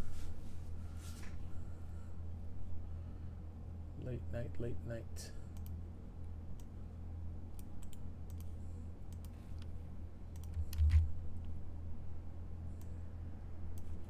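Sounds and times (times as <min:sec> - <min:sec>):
low hum: 0:00.0 - 0:14.0
typing on computer keyboard: 0:10.4 - 0:11.1.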